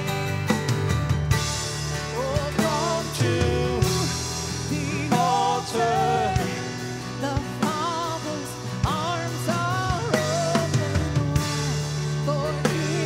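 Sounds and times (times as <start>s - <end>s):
acoustic guitar: 0.0s - 13.0s
drum kit hits: 0.0s - 13.0s
woman singing: 4.8s - 13.0s.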